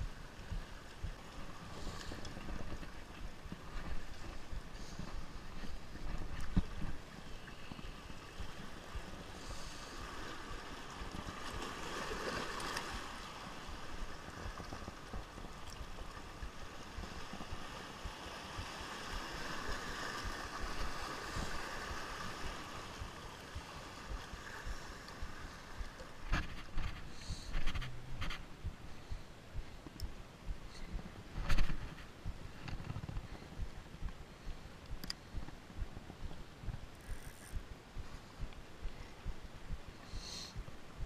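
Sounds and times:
sea water washing among rocks: 3.6 - 27.0.

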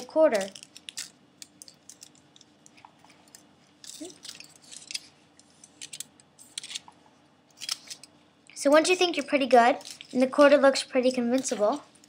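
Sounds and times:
aluminium foil crinkling: 3.1 - 5.1, 9.7 - 10.5.

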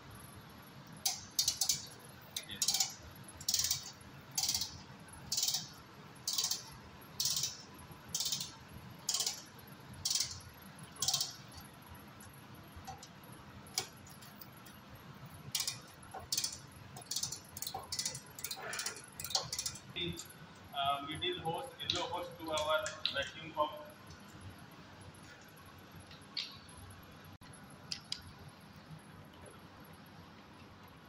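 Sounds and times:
ratchet wrench clicking: 1.0 - 11.7, 13.7 - 14.4, 15.5 - 20.3.

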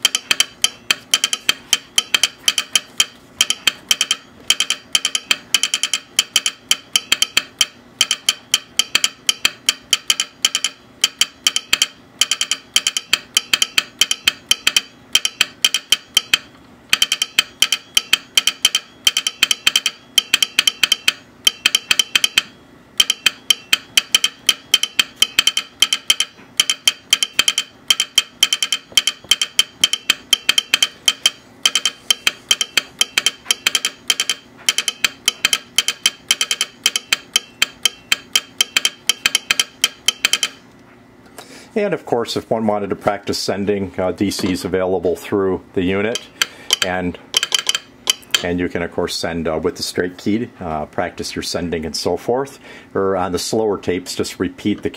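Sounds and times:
telegraph sounder clicking: 0.0 - 40.6, 46.1 - 48.6.

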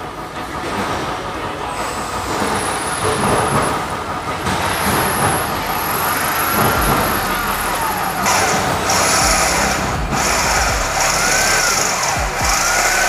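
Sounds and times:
electric drill boring through steel: 5.0 - 13.0.

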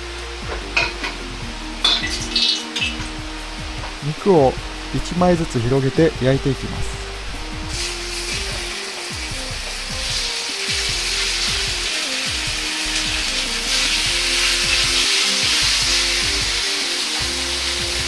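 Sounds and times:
pork sizzling in hot oil: 0.0 - 5.9, 7.0 - 18.0.

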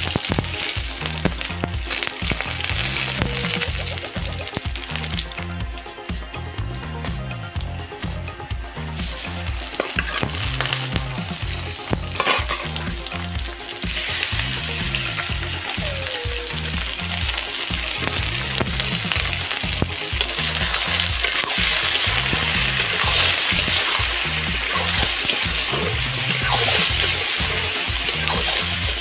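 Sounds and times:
food sizzling in hot oil: 0.0 - 6.4, 7.6 - 29.0.

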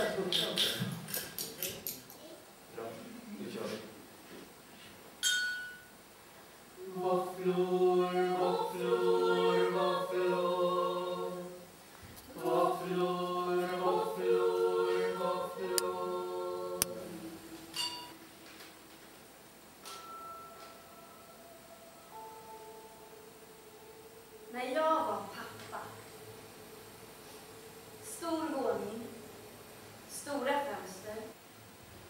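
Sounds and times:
group singing in harmony: 6.8 - 19.2, 20.8 - 30.4.

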